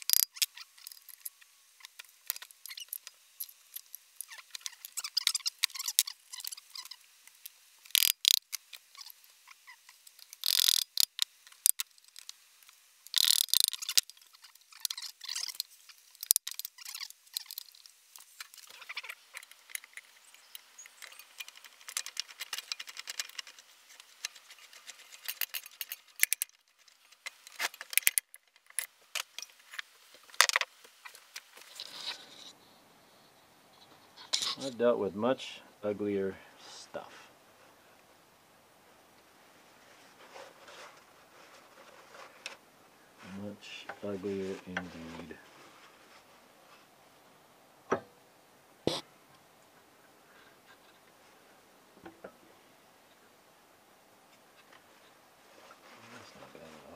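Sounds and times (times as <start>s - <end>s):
hand tools clicking and clinking: 18.4s - 29.6s.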